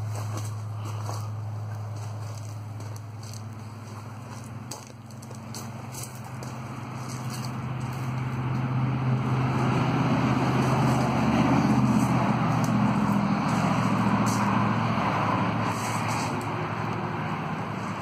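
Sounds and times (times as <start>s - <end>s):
vehicle driving past: 0.0s - 18.0s.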